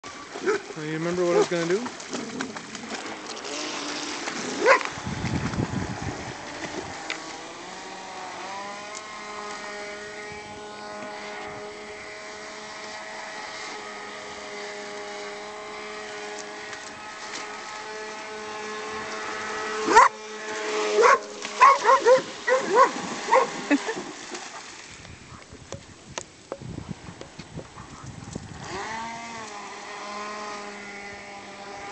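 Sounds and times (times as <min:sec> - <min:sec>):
water splashing: 0:00.0 - 0:31.9
electric motor whine: 0:00.1 - 0:24.2, 0:28.2 - 0:31.9
dog yelping: 0:04.6 - 0:04.9, 0:19.9 - 0:20.1, 0:21.0 - 0:23.6.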